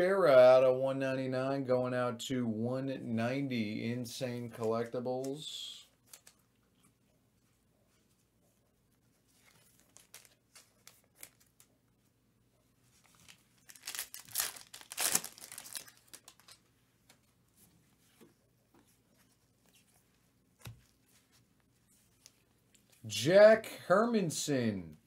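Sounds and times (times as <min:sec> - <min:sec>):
foil crinkling: 0:09.5 - 0:11.6, 0:13.0 - 0:16.6
foil wrapper ripping: 0:13.1 - 0:16.6.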